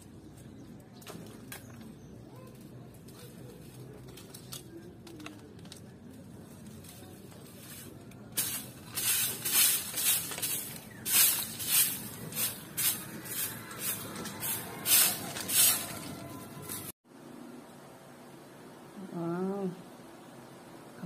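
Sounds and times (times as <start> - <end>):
stick broom sweeping concrete: 6.7 - 16.9.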